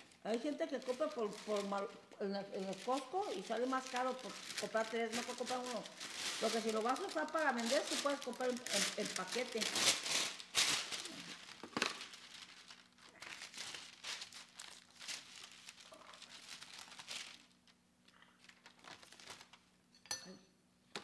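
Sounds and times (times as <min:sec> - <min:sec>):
baking paper crinkling: 0:00.0 - 0:19.8.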